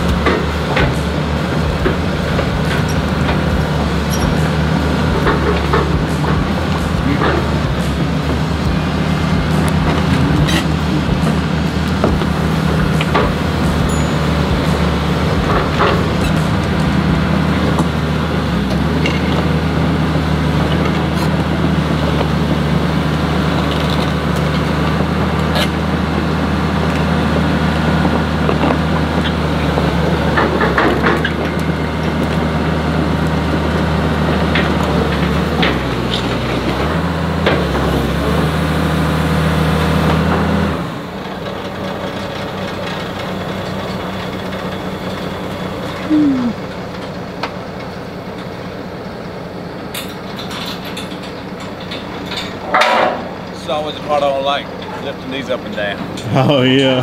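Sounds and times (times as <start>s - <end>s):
metallic clanks: 0.0s - 22.8s, 49.9s - 57.0s
heavy diesel engine running: 0.0s - 57.0s.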